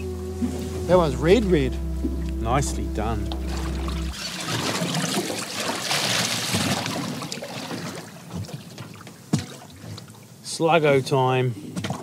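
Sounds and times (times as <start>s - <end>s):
water lapping against boat hull: 3.3s - 10.4s.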